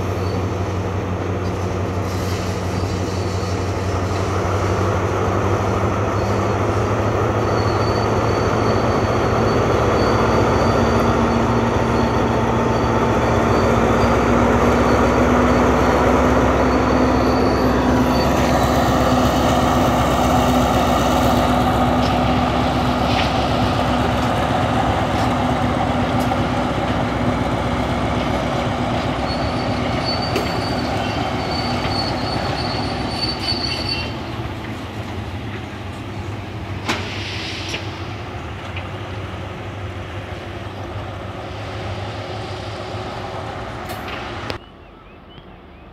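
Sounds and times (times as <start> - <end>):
high wheel squeal: 0.0 - 26.7, 27.4 - 34.8
diesel locomotive engine drone: 0.0 - 45.9.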